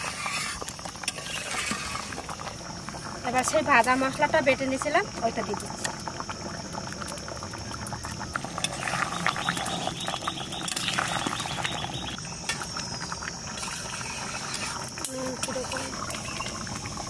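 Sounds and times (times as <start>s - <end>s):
metal ladle scraping a pan: 0.0s - 2.4s, 8.6s - 9.9s, 13.6s - 16.6s.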